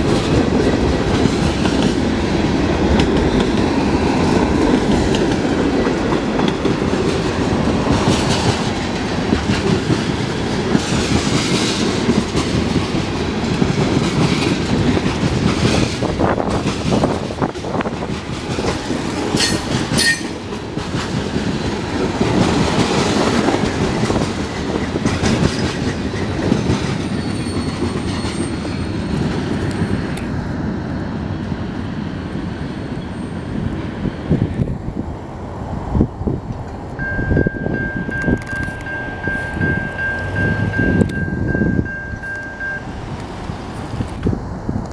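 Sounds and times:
train wheels clattering on rails: 0:00.0 - 0:30.5
crossing bell ringing: 0:19.4 - 0:20.4, 0:37.0 - 0:43.2
high wheel squeal: 0:19.4 - 0:20.4, 0:27.0 - 0:30.2.

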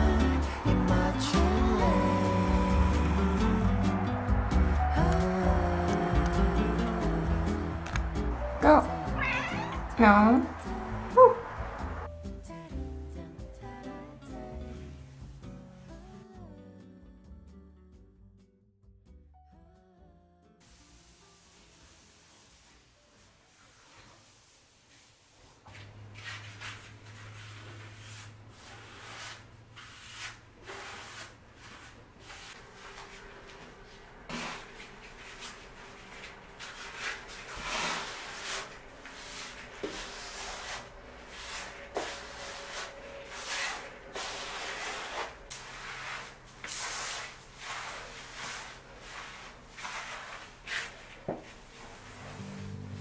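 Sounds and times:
grout float scraping tiles: 0:25.7 - 0:33.1, 0:33.8 - 0:52.4.

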